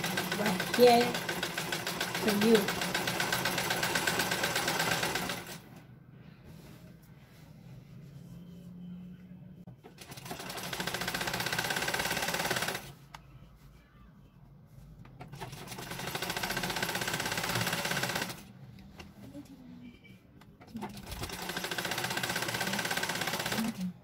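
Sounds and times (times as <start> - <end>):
sewing machine stitching: 0.0 - 5.6, 9.8 - 12.9, 15.2 - 18.5, 20.6 - 23.9.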